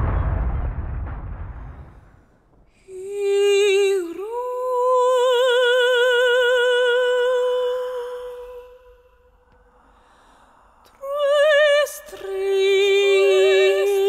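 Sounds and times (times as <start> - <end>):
deep boom: 0.0 - 2.8
woman singing wordless note: 11.0 - 14.0.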